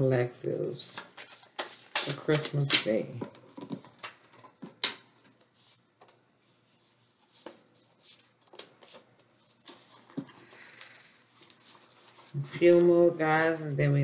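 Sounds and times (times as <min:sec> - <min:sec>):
cards being shuffled: 0:00.8 - 0:06.2, 0:06.9 - 0:13.5.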